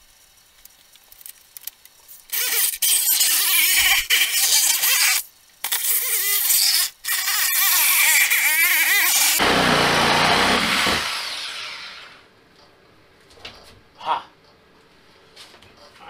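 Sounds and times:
reciprocating saw cutting plastic: 2.3s - 12.2s.

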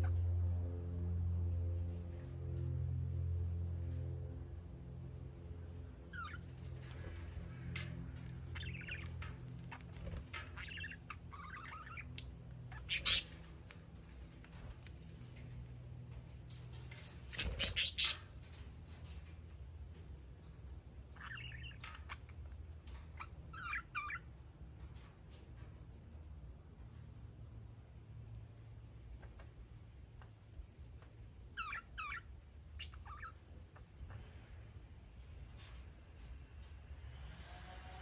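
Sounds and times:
budgerigars chirping: 8.5s - 9.2s, 9.8s - 13.5s, 17.4s - 18.2s.

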